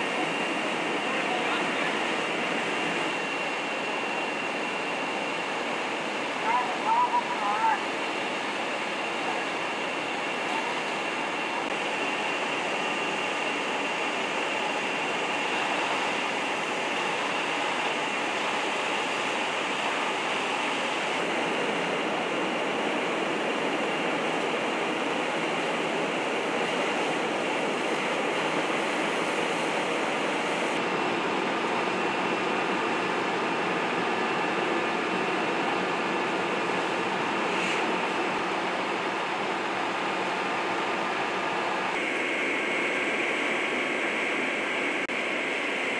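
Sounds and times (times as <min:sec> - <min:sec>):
fire engine pumps running: 0:00.0 - 0:45.9
thin high whine: 0:41.9 - 0:45.9.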